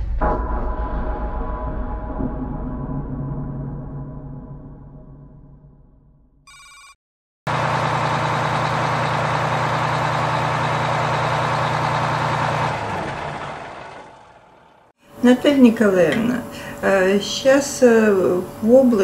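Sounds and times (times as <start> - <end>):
short electronic beep: 6.5 - 7.0
bus engine running: 7.5 - 15.0.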